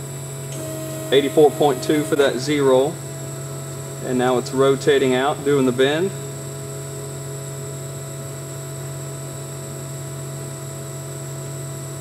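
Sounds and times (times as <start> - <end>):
hydraulic machine droning: 0.0 - 8.4.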